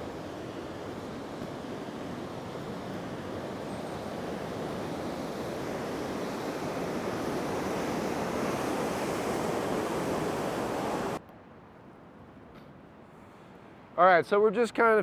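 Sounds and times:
river rapids rushing: 0.0s - 11.2s.

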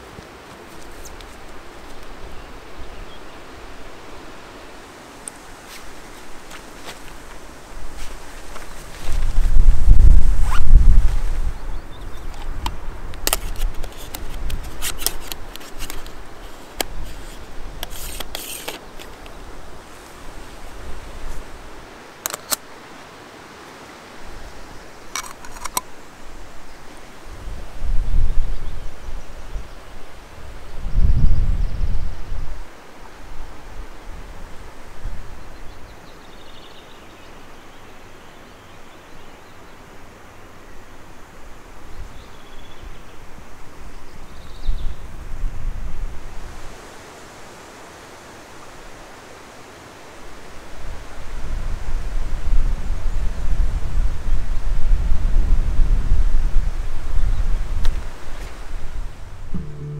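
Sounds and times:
wind rumbling on microphone: 0.0s - 21.9s, 24.2s - 36.0s, 41.8s - 46.9s, 50.6s - 59.9s
steady hiss: 0.0s - 59.9s
rustling scrape: 5.6s - 11.4s, 13.3s - 19.1s, 25.2s - 25.8s
plastic clicks of camera lens: 12.3s - 19.4s, 22.2s - 22.6s, 25.2s - 25.9s.

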